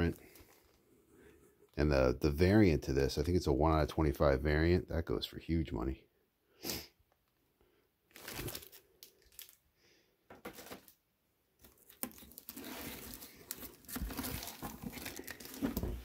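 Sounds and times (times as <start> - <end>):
plastic bags crinkling: 8.1 - 9.6, 11.6 - 16.0.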